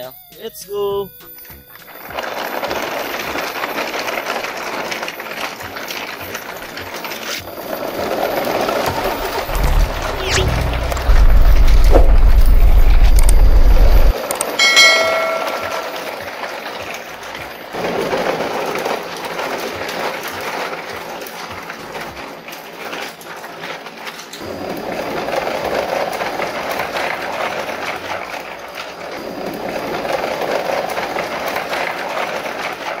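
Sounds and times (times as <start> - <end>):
plastic toy trucks rattling: 1.9 - 9.4, 16.5 - 33.0.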